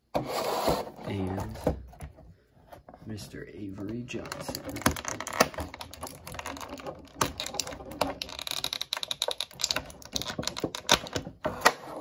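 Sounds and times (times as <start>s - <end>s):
small plastic parts clicking: 4.2s - 11.4s.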